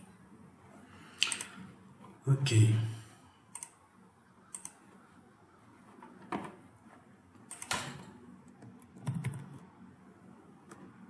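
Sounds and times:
computer mouse clicks: 0:01.2 - 0:01.6, 0:03.5 - 0:03.8, 0:04.5 - 0:05.0, 0:07.4 - 0:07.8, 0:08.4 - 0:09.7
keyboard keystrokes: 0:08.5 - 0:09.6.

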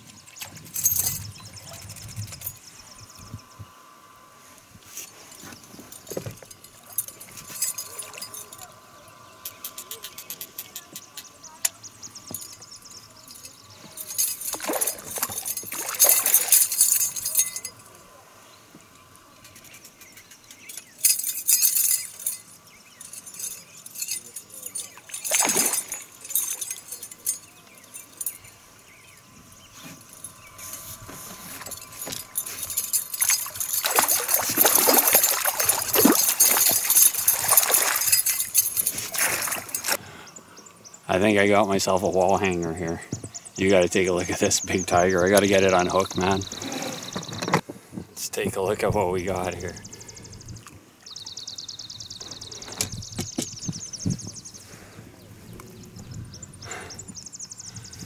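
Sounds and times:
fish thrashing and splashing: 0:14.5 - 0:17.0, 0:25.0 - 0:26.8, 0:31.6 - 0:40.0.

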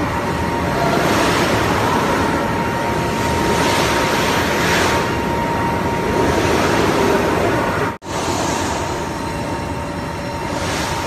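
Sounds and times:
thin high whine: 0:00.0 - 0:11.0.

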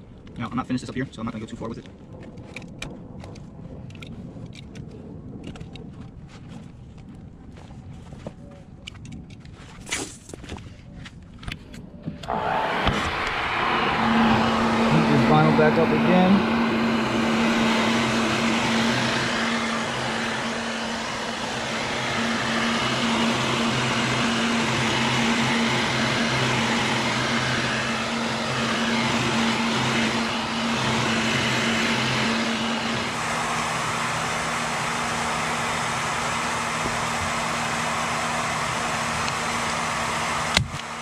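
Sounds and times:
heat gun motor hum: 0:12.2 - 0:41.0
heat gun blowing hiss: 0:12.3 - 0:41.0.

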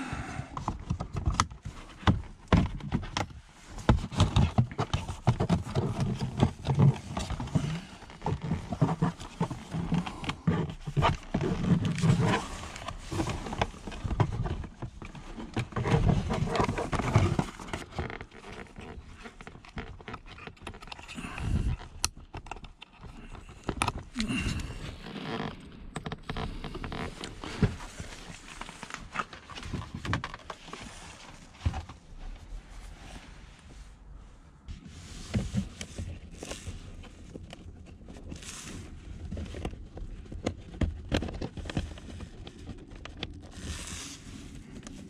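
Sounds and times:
plastic panel scraping and clicking: 0:00.6 - 0:32.0.

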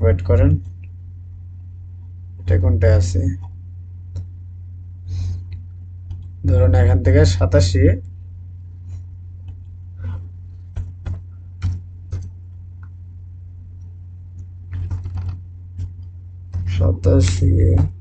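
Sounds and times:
steady low hum: 0:00.0 - 0:18.0
keyboard key clicks: 0:10.8 - 0:12.3.

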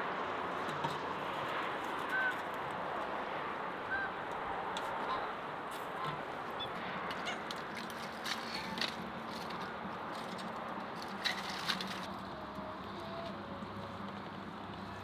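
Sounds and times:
geese honking: 0:03.9 - 0:04.2.

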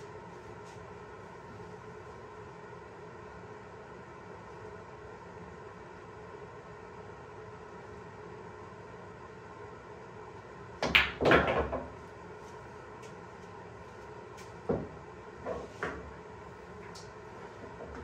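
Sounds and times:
pool balls knocking: 0:10.8 - 0:12.0.

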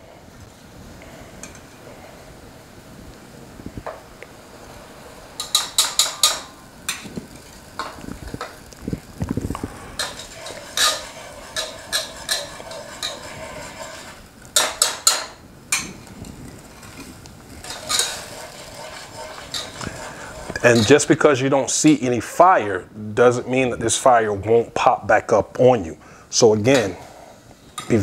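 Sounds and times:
whisk clicking against pot: 0:10.0 - 0:15.4, 0:17.6 - 0:21.1.

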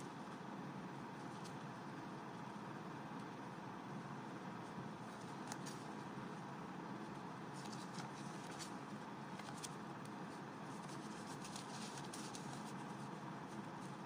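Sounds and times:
banknotes flicking and rustling: 0:04.6 - 0:06.4, 0:07.0 - 0:14.0.

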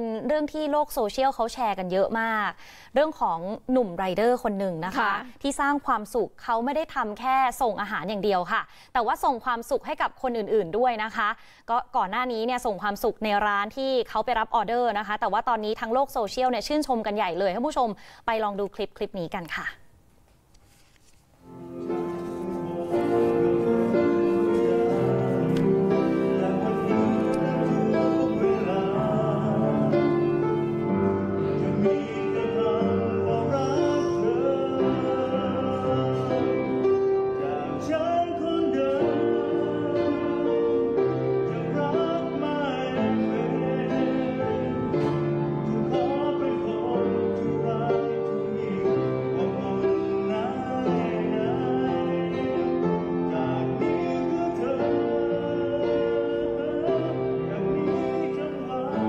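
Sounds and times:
upright piano: 0:21.4 - 0:59.0
man singing: 0:22.1 - 0:59.0.

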